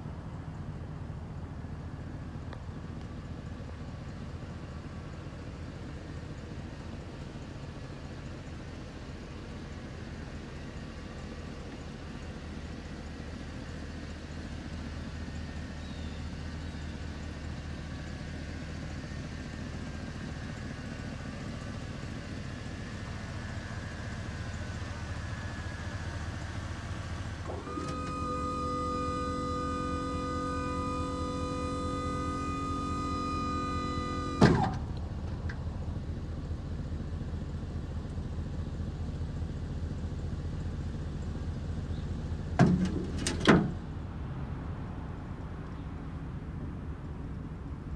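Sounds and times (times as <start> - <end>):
truck engine idling: 0.0 - 47.9
motor whine: 27.4 - 36.0
sharp clunk: 34.2 - 34.8, 42.6 - 43.8.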